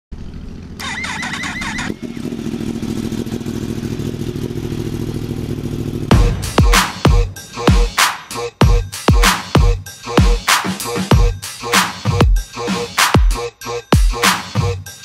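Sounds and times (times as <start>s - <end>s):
motorcycle engine idling: 0.1s - 8.0s
electronic music with deep bass: 6.1s - 15.0s.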